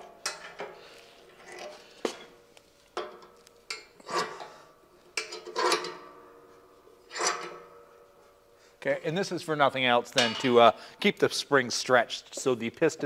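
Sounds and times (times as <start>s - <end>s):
metal clamps clinking and knocking: 0.0s - 2.3s, 5.1s - 6.2s, 7.1s - 8.0s, 10.1s - 10.6s
metal scraping: 3.0s - 8.6s.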